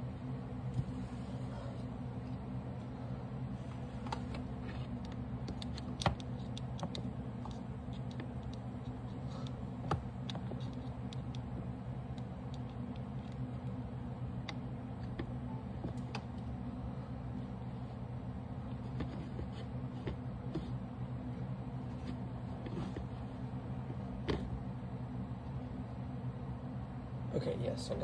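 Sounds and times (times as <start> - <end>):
steady low hum: 0.0 - 28.0
small clicks and taps: 5.0 - 13.4.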